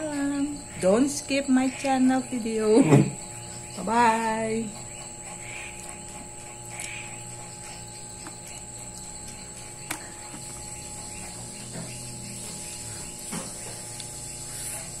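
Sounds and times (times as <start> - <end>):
high-pitched whine: 0.0 - 15.0.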